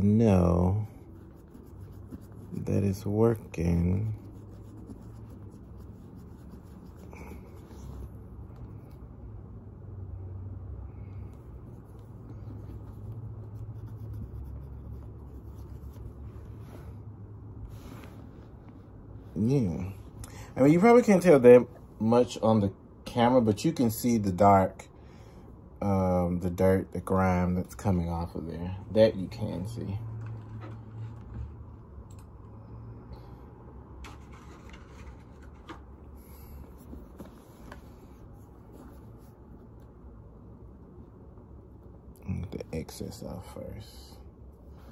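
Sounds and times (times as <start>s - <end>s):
cotton swab scrubbing on metal: 0.0s - 8.6s
low steady rumble: 0.0s - 44.9s.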